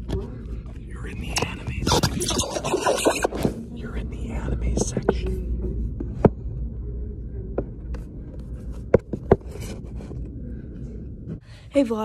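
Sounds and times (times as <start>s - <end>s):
faint rubbing and scraping: 0.0s - 11.4s
low room rumble: 0.0s - 12.0s.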